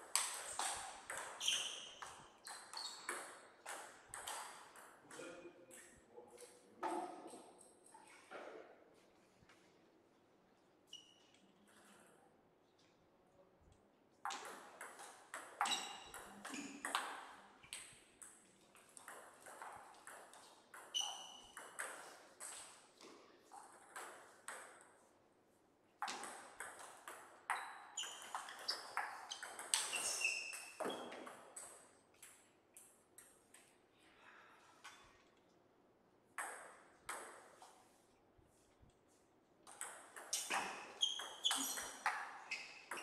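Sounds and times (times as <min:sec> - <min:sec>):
short squeaks: 0:01.4 - 0:03.1, 0:28.0 - 0:30.9, 0:40.3 - 0:43.0.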